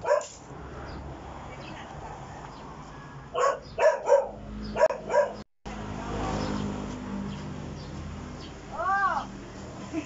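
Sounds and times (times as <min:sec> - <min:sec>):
dog barking: 0:00.0 - 0:00.4, 0:03.3 - 0:05.4.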